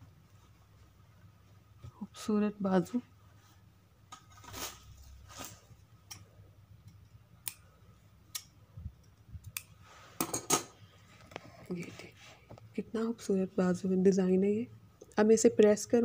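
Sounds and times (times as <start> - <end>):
fabric rustling: 4.3 - 5.8.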